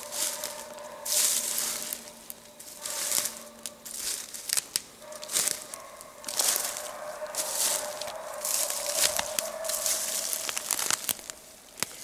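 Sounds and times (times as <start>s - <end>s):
footsteps crunching through leaves: 0.0s - 12.0s
sticks snapping underfoot: 3.0s - 5.7s, 7.7s - 12.0s.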